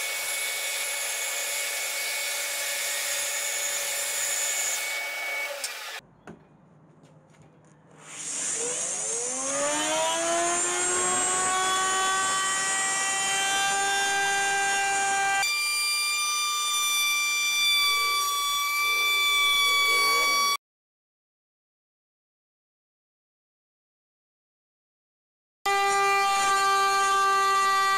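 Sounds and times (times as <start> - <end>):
bandsaw cutting wood: 0.0 - 6.0, 8.0 - 20.6, 25.7 - 27.9
router motor whining: 0.0 - 6.0, 8.0 - 20.6, 25.7 - 27.9.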